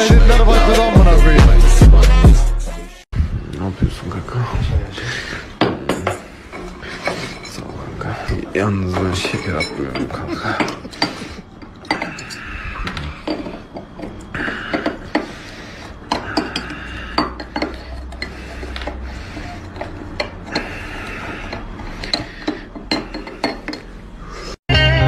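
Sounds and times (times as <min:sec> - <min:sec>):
tea glass and saucer clinking: 0:08.8 - 0:12.4.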